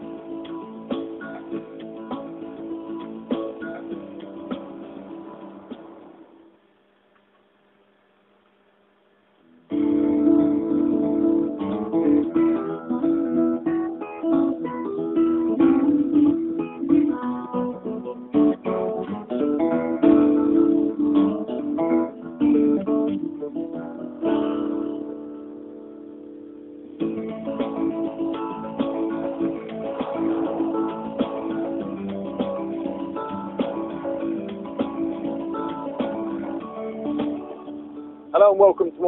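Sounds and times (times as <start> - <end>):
theme music: 27.1 - 37.7.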